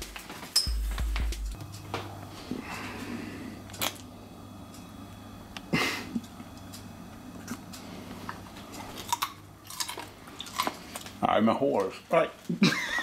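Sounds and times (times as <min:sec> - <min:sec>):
low steady hum: 0:00.6 - 0:12.1
carrot crunching: 0:07.4 - 0:11.2
chewing: 0:07.4 - 0:11.2.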